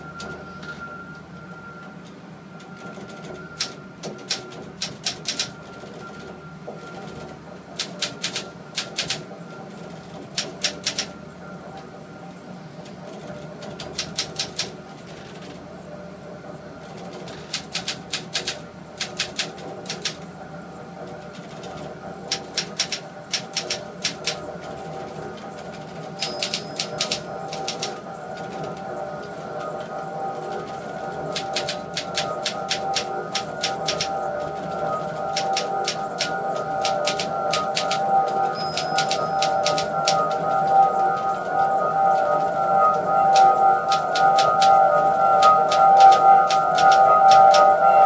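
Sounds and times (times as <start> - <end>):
steady drone of held tones: 0.0 - 48.0
typewriter keys clicking: 3.6 - 5.5, 7.8 - 9.2, 10.4 - 11.1, 13.8 - 14.7, 17.4 - 20.2, 22.3 - 24.4, 26.2 - 28.5, 31.3 - 34.1, 35.3 - 38.0, 38.7 - 40.3, 43.3 - 44.8, 45.4 - 47.6.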